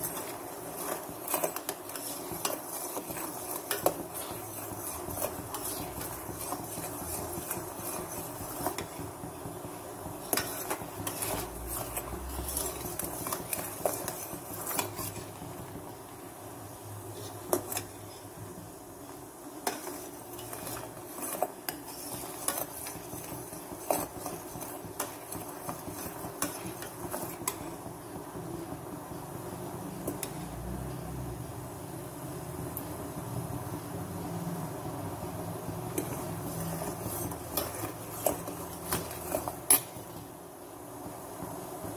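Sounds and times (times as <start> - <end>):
metal spoon scraping a pan: 0.0 - 15.7, 17.1 - 18.4, 19.6 - 27.8, 30.0 - 30.5, 35.9 - 40.3
syrup bubbling: 0.0 - 16.2.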